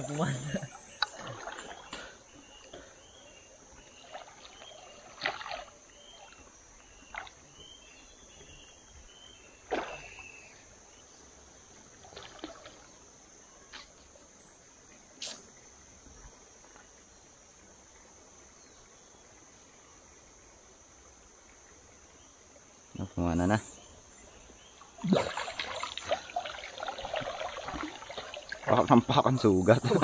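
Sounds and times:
water splashing and sloshing: 0.0 - 14.2, 24.2 - 30.0.

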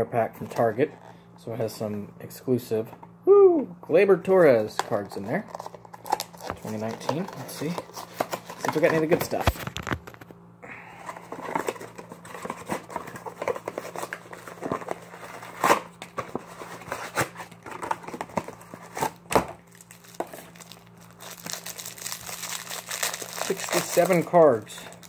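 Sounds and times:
packaging crinkling and tearing: 4.8 - 10.2, 11.0 - 25.0.

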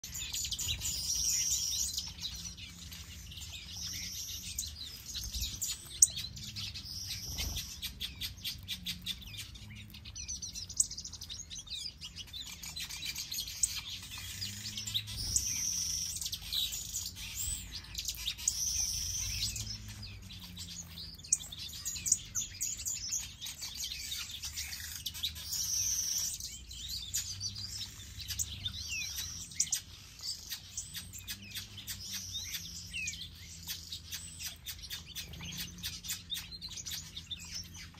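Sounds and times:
finches chirping and twittering: 0.0 - 37.9.

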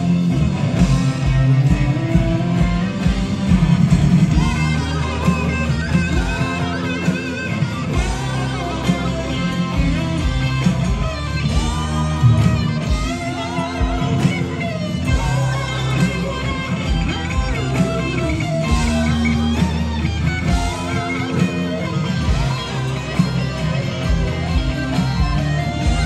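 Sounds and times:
electric guitar bent notes: 0.0 - 26.0
rock band playing live: 0.0 - 26.0.

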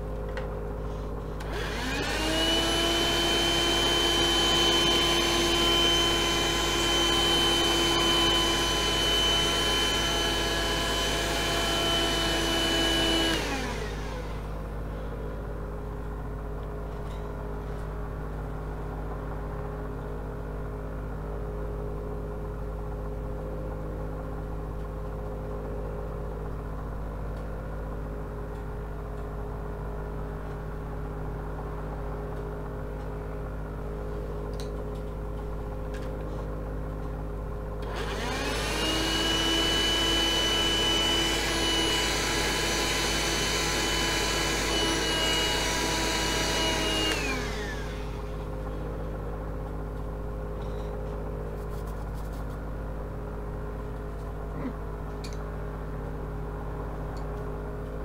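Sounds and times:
hand vacuum whining: 1.4 - 14.6, 37.8 - 48.4.

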